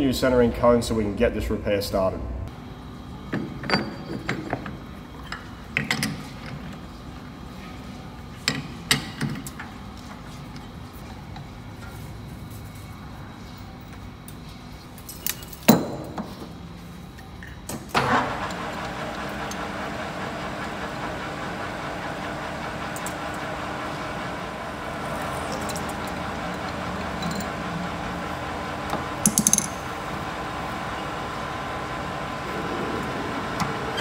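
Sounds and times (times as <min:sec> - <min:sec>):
metal lathe motor hum: 0:18.0 - 0:34.0.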